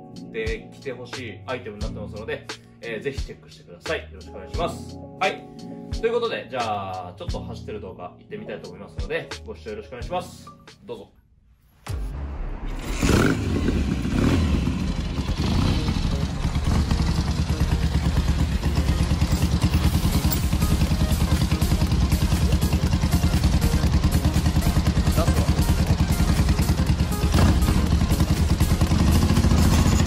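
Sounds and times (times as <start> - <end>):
motorcycle engine starting: 12.6 - 30.0
motorcycle engine idling: 13.1 - 30.0.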